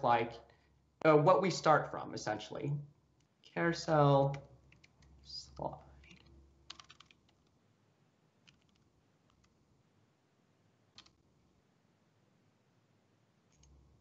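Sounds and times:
computer keyboard keystrokes: 6.1 - 7.4, 8.4 - 9.5, 10.9 - 11.2.

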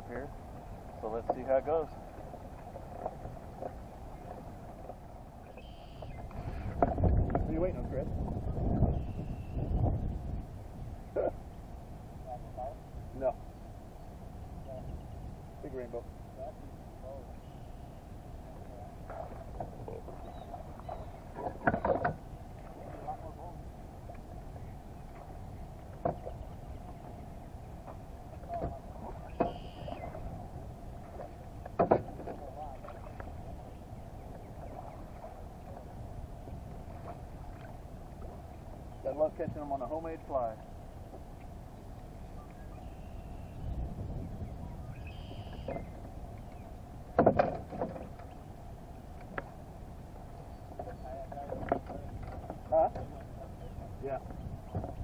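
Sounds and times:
wind noise: 0.0 - 17.4, 18.3 - 48.3, 50.8 - 55.0
water noise: 0.0 - 55.0
knocks on kayak hull: 31.6 - 32.4, 47.1 - 48.2.

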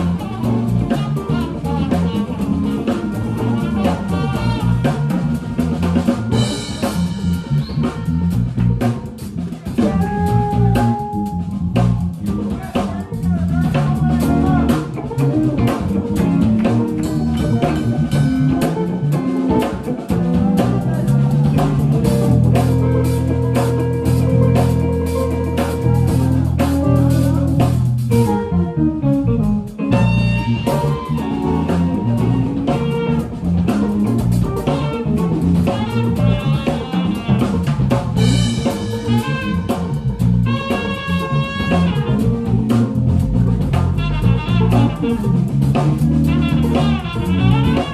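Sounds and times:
melodic lead line: 0.0 - 12.4, 13.7 - 47.9
drum kit keeping time: 0.0 - 47.9
guitar playing: 0.0 - 47.9.

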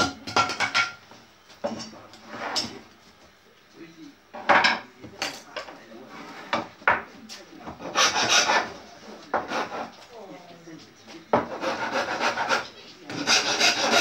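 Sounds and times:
tools scraping wood: 7.7 - 10.0, 11.4 - 14.0.

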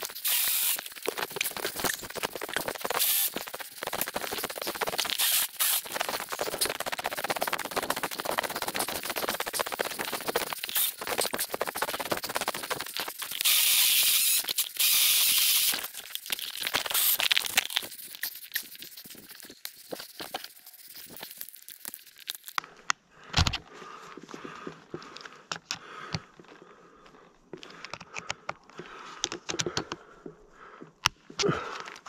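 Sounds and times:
pole saw cutting branches: 0.0 - 20.8.

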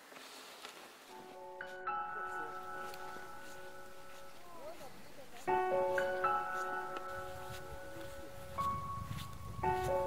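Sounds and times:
slow sustained background music: 1.1 - 10.0.

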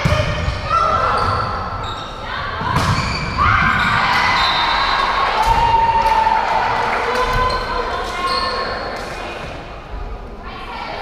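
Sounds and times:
spectators cheering: 3.4 - 7.9.

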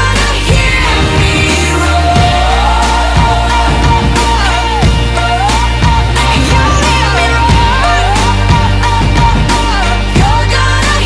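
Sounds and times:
pop song with singer and band: 0.0 - 11.0.

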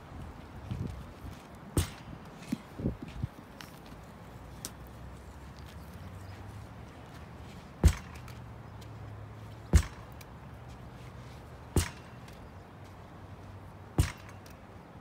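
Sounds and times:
ball smacking rebounder: 9.7 - 10.0.

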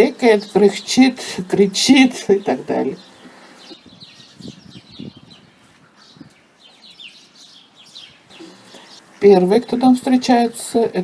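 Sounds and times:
sparrows chirping: 0.0 - 11.0.

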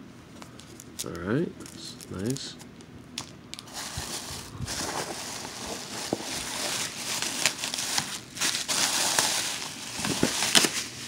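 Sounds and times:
plastic wrap crinkling: 3.5 - 11.0.

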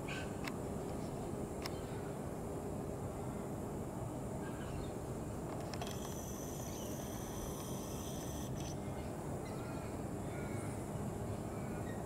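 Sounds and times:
thin high whine: 5.8 - 8.8
faint bird chirps: 6.2 - 10.7.

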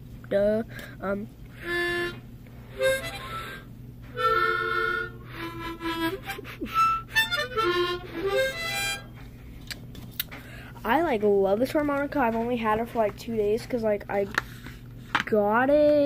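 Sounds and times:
toy harmonica playing: 1.6 - 9.2.

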